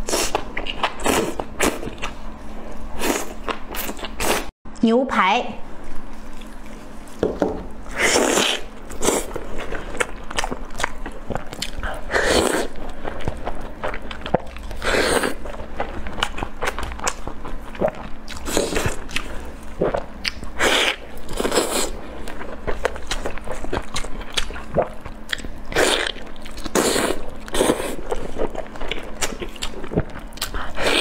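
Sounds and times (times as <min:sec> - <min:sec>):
wet chewing: 0:07.9 - 0:31.0.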